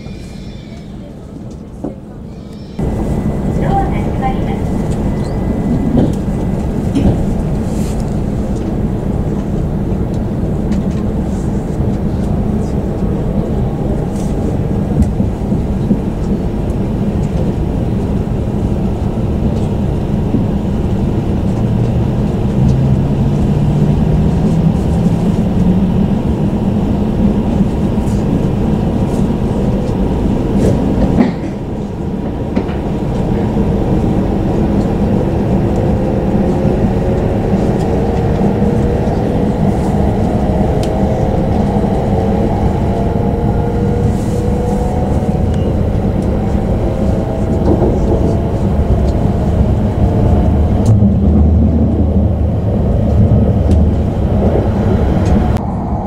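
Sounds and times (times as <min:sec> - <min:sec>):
train rumbling: 0:00.0 - 0:56.0.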